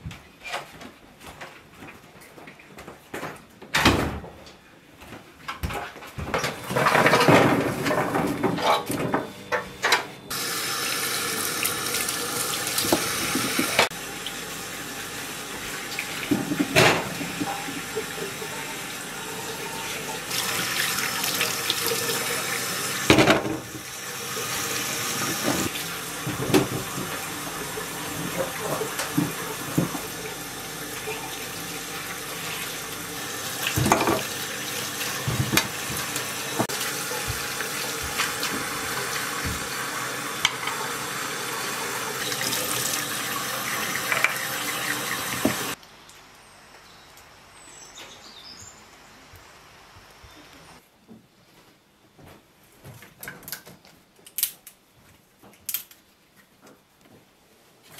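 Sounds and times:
dishes clattering: 6.4 - 10.1
tap running into metal sink: 12.7 - 13.9, 33.6 - 34.4, 43.7 - 45.8.

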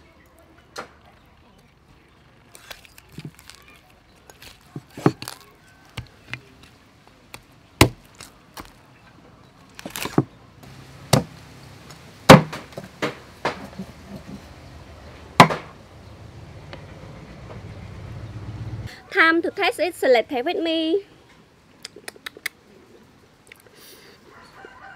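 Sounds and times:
cleaver chopping on wooden block: 11.1 - 11.4, 12.3 - 13.7, 15.4 - 15.7.

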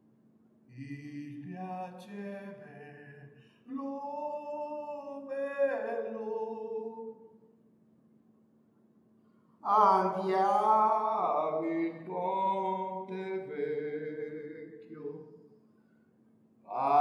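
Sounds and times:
faint steady hum: 0.0 - 17.0
person singing unaccompanied: 0.9 - 7.1, 9.6 - 15.2, 16.7 - 17.0.

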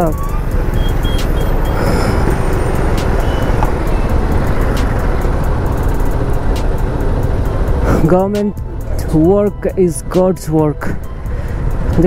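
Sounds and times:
motorcycle engine rumble: 0.0 - 9.4
city traffic: 0.0 - 12.0.

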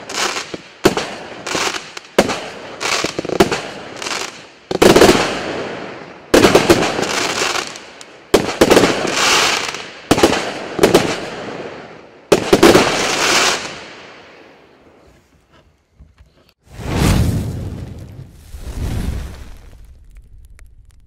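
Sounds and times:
fireworks bangs: 0.0 - 14.5, 16.7 - 20.8
crackling hiss of bursting stars: 16.7 - 21.0.

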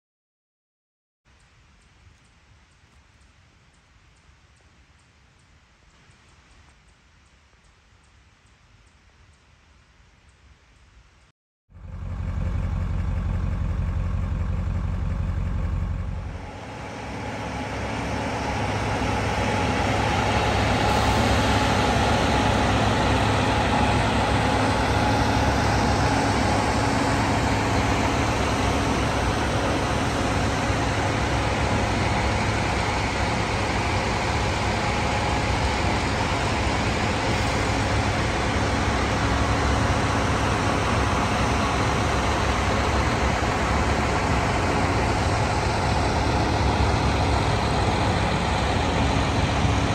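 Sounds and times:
locomotive engine drone: 11.7 - 49.9.

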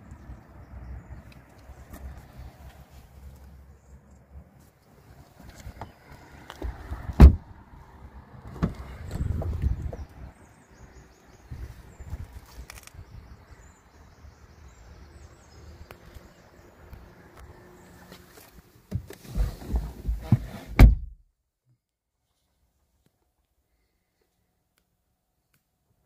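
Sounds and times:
faint birdsong: 0.0 - 20.6, 22.3 - 26.0
car door slamming: 7.1 - 7.5, 18.9 - 21.2.

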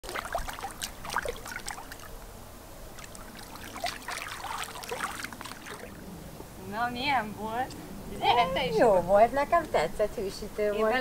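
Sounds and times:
water splashing and trickling: 0.0 - 6.2.

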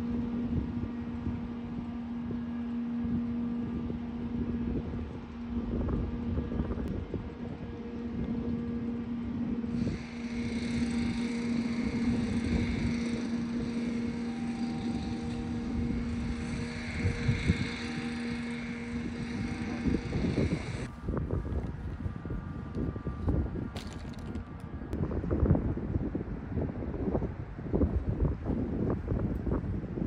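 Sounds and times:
vehicle motor humming: 0.0 - 25.0
wind rumbling on microphone: 0.0 - 30.0
higher bright tone: 7.7 - 20.9.

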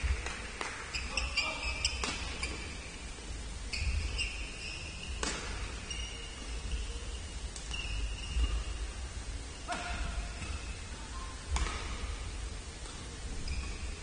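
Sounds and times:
shoes squeaking on court: 0.9 - 2.9, 3.7 - 8.9, 13.4 - 14.0
rackets hitting shuttlecock: 1.9 - 2.7, 5.1 - 5.8, 9.7 - 10.7, 11.5 - 12.2.

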